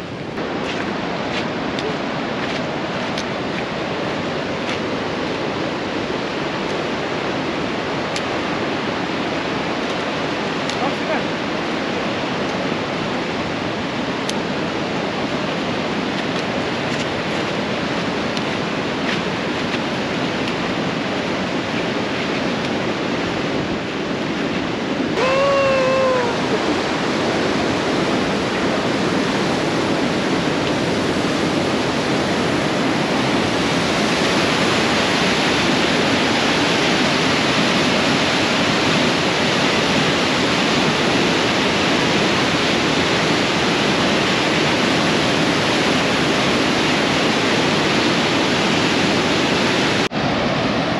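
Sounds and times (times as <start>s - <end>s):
waterfall rushing: 0.0s - 50.9s
person shouting: 25.2s - 26.8s.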